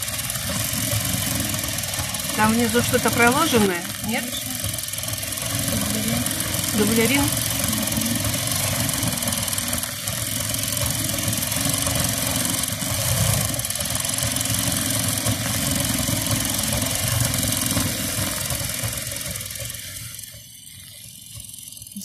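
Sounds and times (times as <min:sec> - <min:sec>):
sewing machine running: 0:00.0 - 0:22.0.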